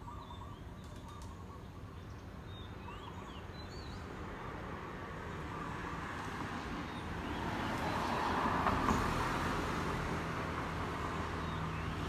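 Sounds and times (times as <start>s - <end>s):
vehicle passing: 4.7s - 12.0s.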